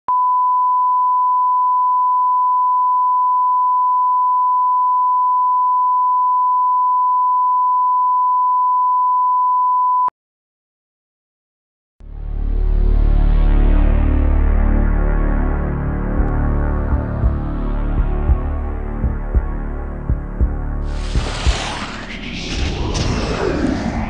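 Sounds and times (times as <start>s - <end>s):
pure test tone beep: 0.1s - 10.1s.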